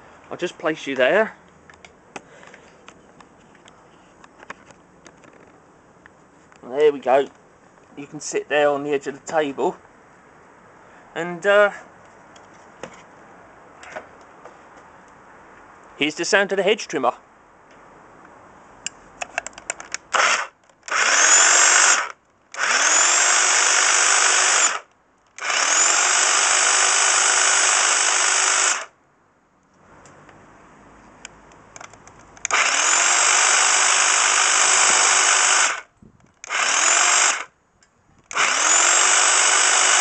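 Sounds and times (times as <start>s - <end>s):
electric hedge trimmer whining: 20.1s - 28.9s, 32.5s - 37.5s, 38.3s - 40.0s.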